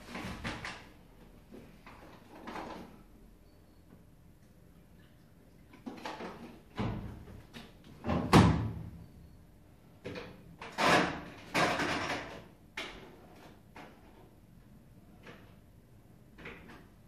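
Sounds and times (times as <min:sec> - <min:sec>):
washing machine clunks and knocks: 0:06.7 - 0:07.4, 0:08.0 - 0:09.0
washing machine door slamming: 0:08.0 - 0:09.0.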